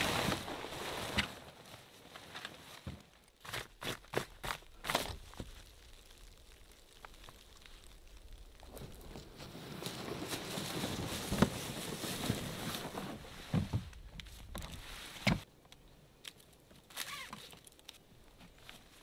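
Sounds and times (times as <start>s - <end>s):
footsteps in snow: 7.6s - 15.2s
fabric rustling: 8.8s - 13.9s.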